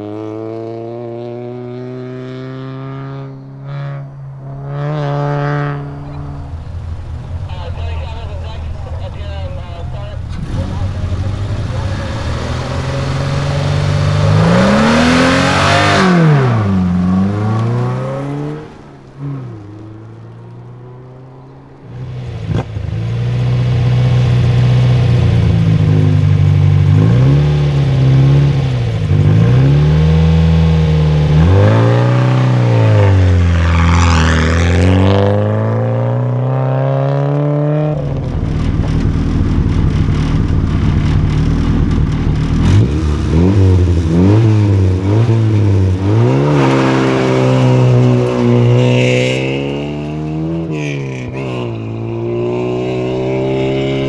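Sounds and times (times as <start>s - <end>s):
rally car accelerating away: 0.0s - 54.0s
car engine idling with throttle blips: 3.4s - 17.0s, 38.0s - 46.0s.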